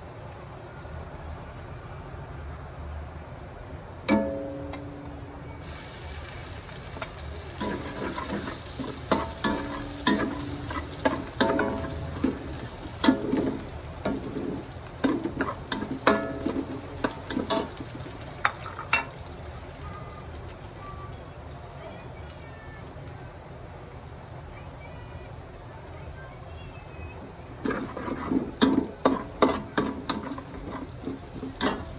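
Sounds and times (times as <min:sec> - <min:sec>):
garlic sizzling in hot oil: 0:05.6 - 0:31.9
metal spatula scraping wok: 0:06.8 - 0:18.9, 0:27.6 - 0:31.9.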